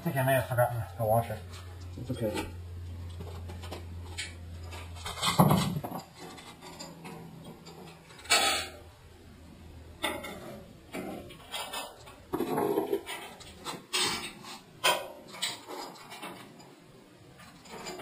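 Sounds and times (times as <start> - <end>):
low steady hum: 0.0 - 18.0
metal clanks and knocks: 1.2 - 8.9, 10.0 - 18.0.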